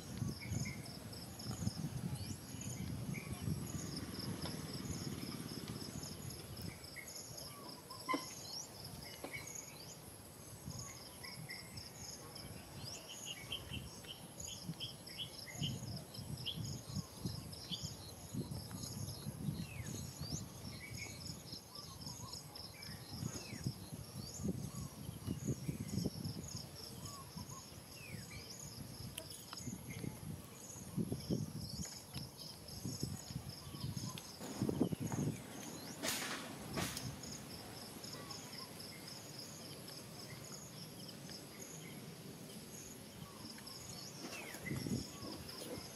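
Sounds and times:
insects chirping in pulses: 0:32.4 - 0:45.9.

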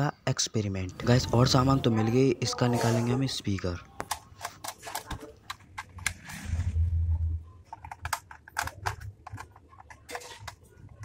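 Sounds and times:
low rumble: 0:06.2 - 0:07.5.

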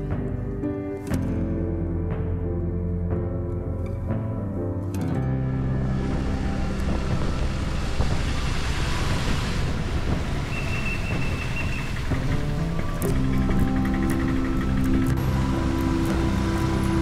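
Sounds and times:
low background music: 0:00.0 - 0:17.0
rain and wind rushing: 0:05.4 - 0:17.0.

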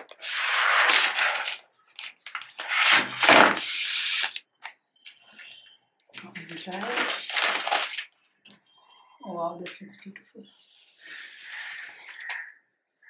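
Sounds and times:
paper wrap rustling off laptop: 0:00.0 - 0:04.4, 0:06.4 - 0:08.1.

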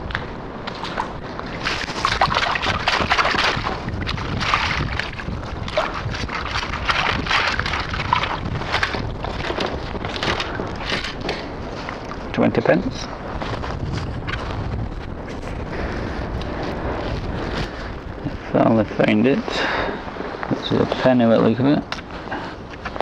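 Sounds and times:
water sloshing and splashing: 0:00.0 - 0:15.4
wind buffeting microphone: 0:00.0 - 0:23.0.

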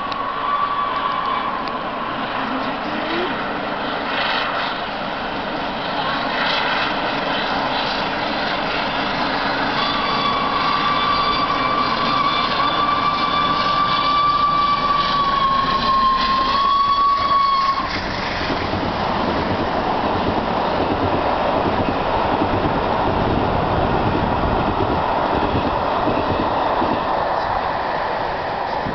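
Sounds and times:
train rushing across viaduct: 0:00.0 - 0:28.9
steam locomotive whistle: 0:00.2 - 0:01.8, 0:09.4 - 0:18.1.

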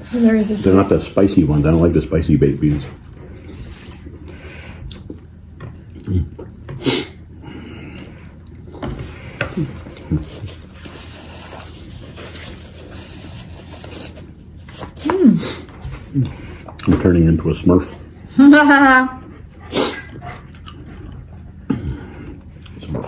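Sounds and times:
quiet chewing: 0:03.0 - 0:08.8, 0:20.1 - 0:23.0.

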